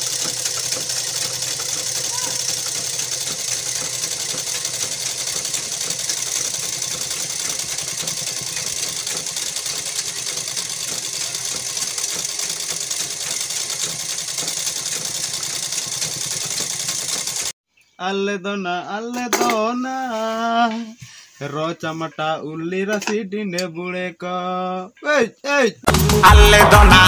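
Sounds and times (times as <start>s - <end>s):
sewing machine rattling: 0.0s - 17.6s.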